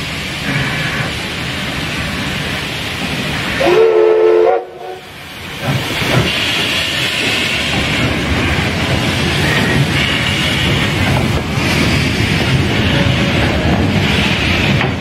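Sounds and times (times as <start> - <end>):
steam locomotive hissing: 0.0 - 15.0
steam whistle blast: 3.6 - 5.1.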